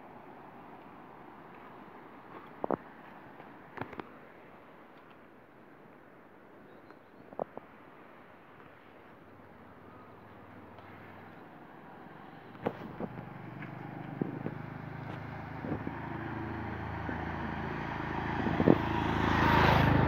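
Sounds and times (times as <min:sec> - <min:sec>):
motorcycle engine passing: 0:11.0 - 0:20.0.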